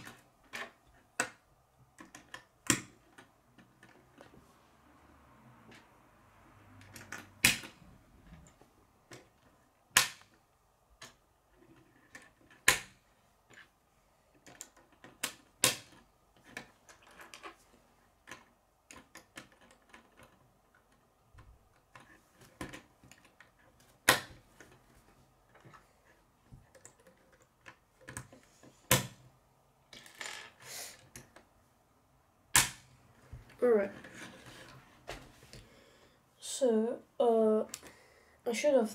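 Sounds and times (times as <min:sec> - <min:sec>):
loud plastic snaps: 0:09.9 - 0:10.4, 0:32.5 - 0:32.9.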